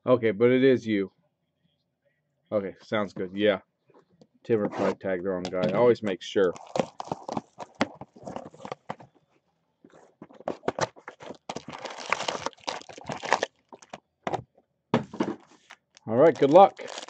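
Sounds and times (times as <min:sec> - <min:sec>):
hands handling cardboard box: 0:04.6 - 0:09.3, 0:09.9 - 0:14.4
packaging crinkling: 0:06.4 - 0:09.1, 0:09.9 - 0:14.0, 0:15.4 - 0:17.0.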